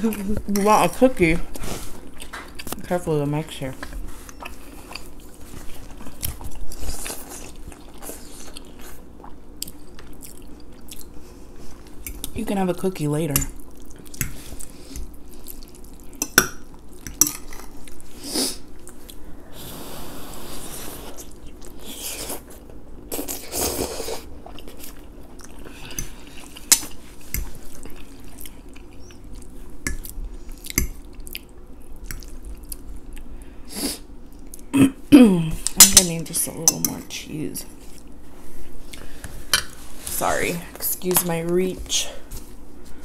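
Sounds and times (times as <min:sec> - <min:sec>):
chewing: 0:03.8 - 0:12.4, 0:21.2 - 0:33.4.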